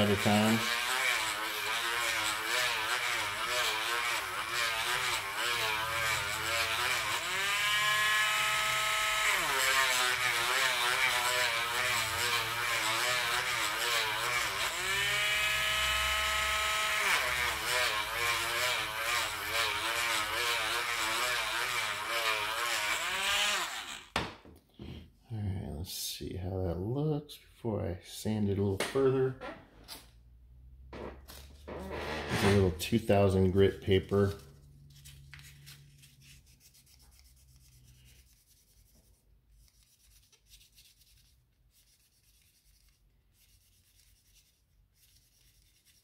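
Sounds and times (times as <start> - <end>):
rotary tool grinding metal: 0.0 - 24.1.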